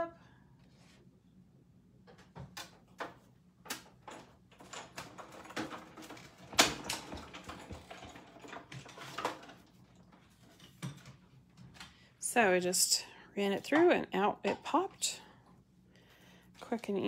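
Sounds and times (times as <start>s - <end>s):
die-cutting machine clicking and clattering: 3.7s - 9.6s.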